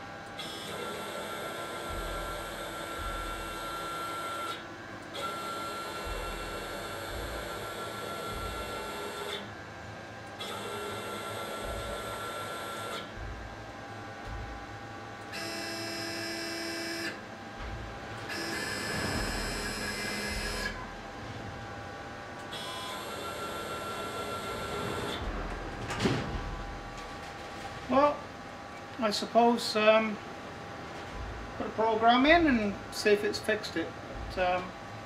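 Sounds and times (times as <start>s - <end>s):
stepper motors whining: 15.2s - 21.8s, 22.4s - 28.2s.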